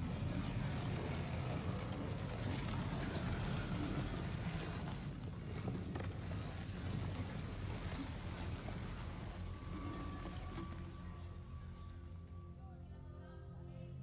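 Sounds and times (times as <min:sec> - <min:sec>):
low rumble with hiss: 0:00.0 - 0:14.0.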